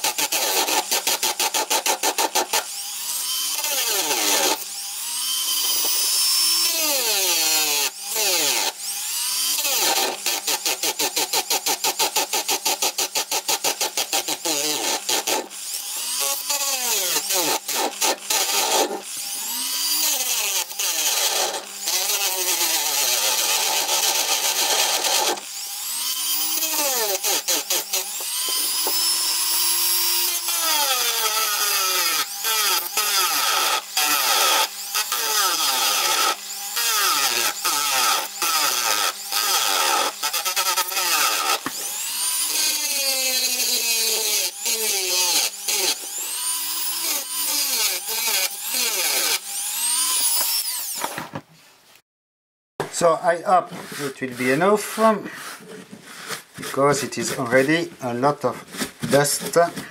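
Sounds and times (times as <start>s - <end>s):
rotary tool cutting metal: 0.0s - 51.4s.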